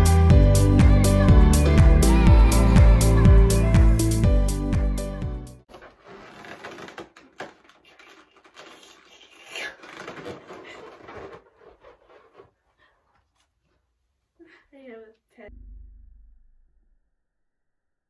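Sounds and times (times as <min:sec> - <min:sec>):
small objects clattering and rustling: 0:05.7 - 0:12.7.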